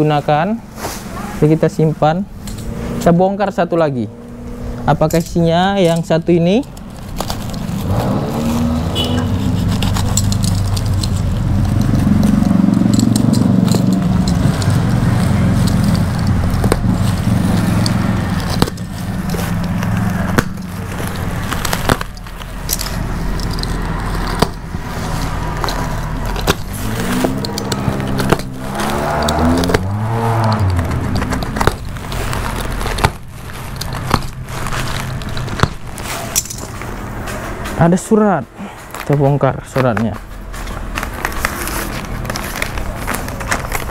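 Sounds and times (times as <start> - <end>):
box cutter scraping through seam: 24.2 - 33.1.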